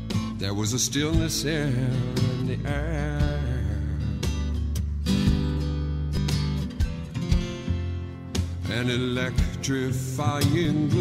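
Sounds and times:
acoustic guitar strumming: 0.0 - 11.0
person singing: 0.2 - 4.4, 8.6 - 11.0.

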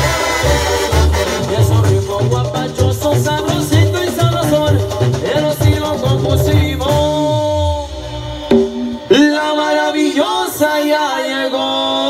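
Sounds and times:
brass horns holding chords: 0.0 - 7.0
tuba bass line: 0.0 - 9.5.

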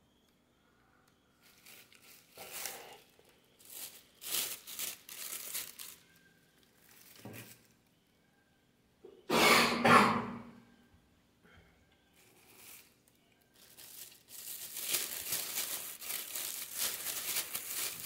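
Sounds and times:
plastic bags rustling and crinkling: 1.3 - 7.9, 12.1 - 18.0.

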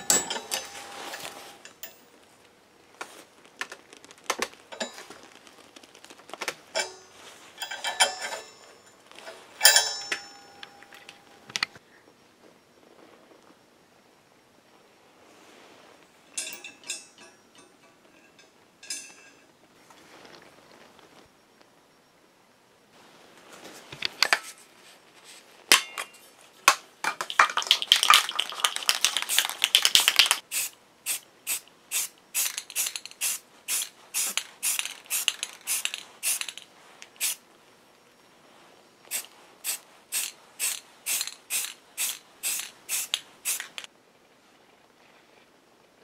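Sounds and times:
spray can shaking with rattling ball: 3.1 - 6.8, 27.0 - 37.4, 39.1 - 43.9.

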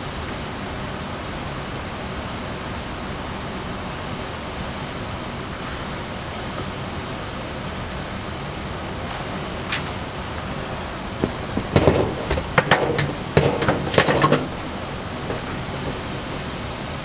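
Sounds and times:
steady background hiss: 0.0 - 17.0
metal grill grate clanking: 9.0 - 16.7.

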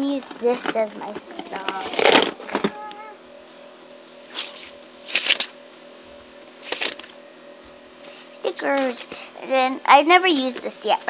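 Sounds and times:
rustling of paper and plastic: 6.6 - 7.1.

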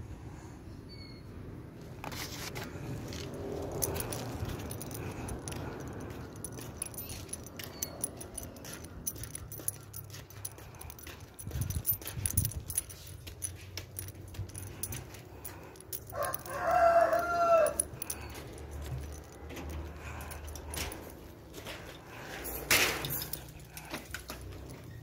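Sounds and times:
rooster crowing: 16.1 - 18.0.

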